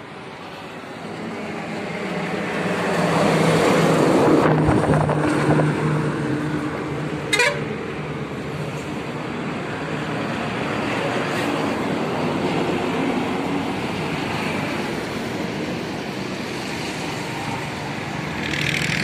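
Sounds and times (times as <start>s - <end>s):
heavy truck passing: 0.2s - 19.0s
truck horn toots: 7.3s - 7.8s.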